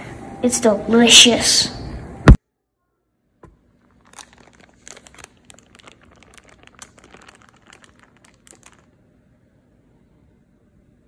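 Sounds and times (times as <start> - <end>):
parchment paper crinkling: 3.9 - 9.0.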